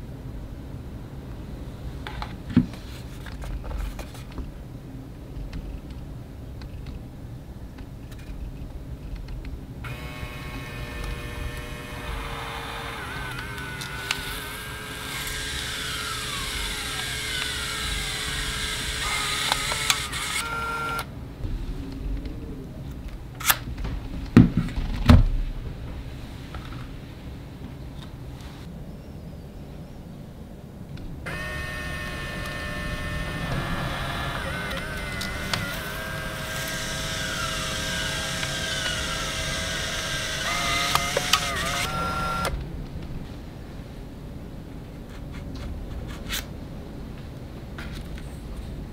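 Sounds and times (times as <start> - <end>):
sharp clicks: 9.1 - 21.1, 31.0 - 42.6
printer mechanism whirring: 9.9 - 21.1, 31.3 - 42.6.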